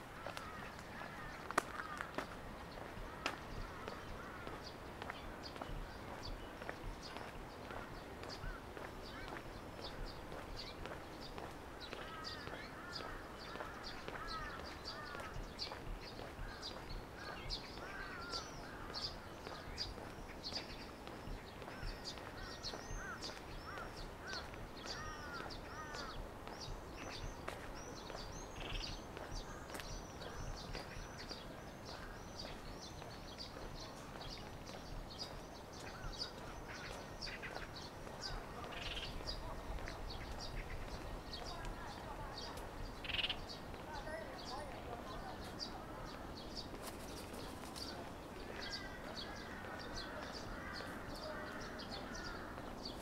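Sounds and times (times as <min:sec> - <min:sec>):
bird's lower arching calls: 0:43.0 - 0:43.5.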